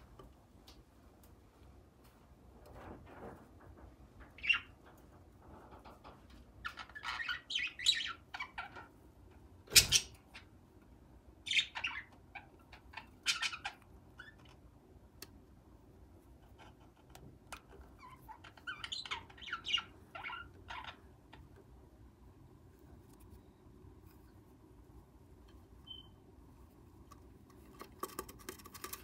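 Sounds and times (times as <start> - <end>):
lovebirds chirping: 4.4 - 4.8, 6.6 - 8.9, 11.4 - 14.6, 17.9 - 21.6, 25.8 - 26.2.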